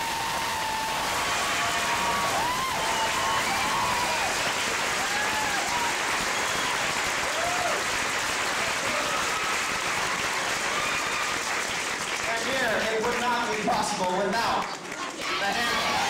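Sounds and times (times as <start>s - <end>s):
people whooping: 0.0s - 11.6s, 15.2s - 16.0s
audience applauding: 0.0s - 16.0s.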